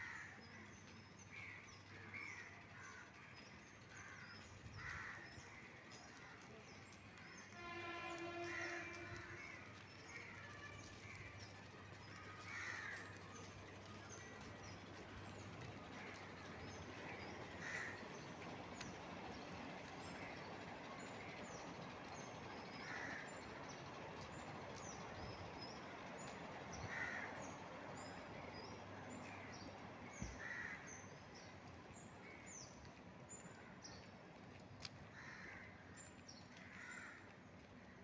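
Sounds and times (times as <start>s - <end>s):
crows cawing: 4.8s - 5.2s, 12.1s - 13.4s, 17.1s - 18.2s, 22.8s - 23.3s, 26.9s - 27.4s, 30.3s - 31.0s, 35.1s - 35.8s, 36.6s - 37.3s.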